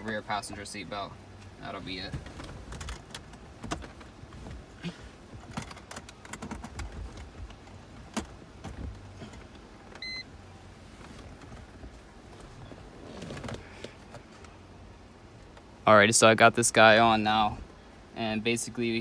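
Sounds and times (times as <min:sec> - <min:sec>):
low steady hum: 0:00.0 - 0:19.0
clicks and handling noises: 0:05.4 - 0:10.0
short electronic beep: 0:10.0 - 0:10.3.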